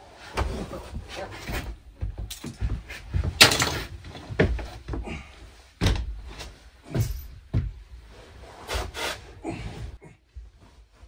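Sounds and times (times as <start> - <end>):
foam mattress thumps and knocks: 5.8 - 7.9.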